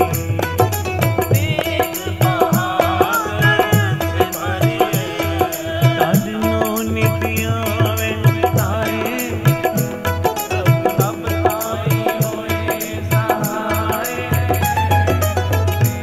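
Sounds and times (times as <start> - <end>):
harmonium tones: 0.0 - 16.0
tabla beat: 0.0 - 16.0
person singing: 1.1 - 16.0.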